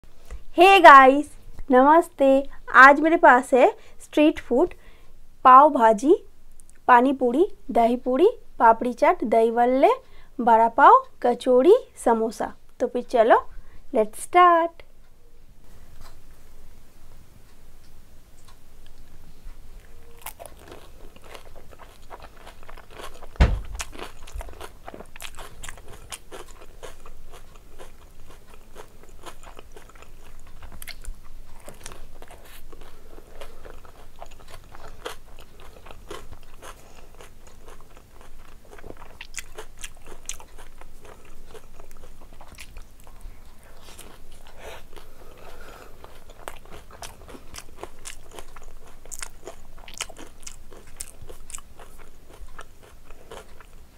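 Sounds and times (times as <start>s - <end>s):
crunching and chewing: 19.8s - 53.9s
loud low thump: 23.4s - 24.1s.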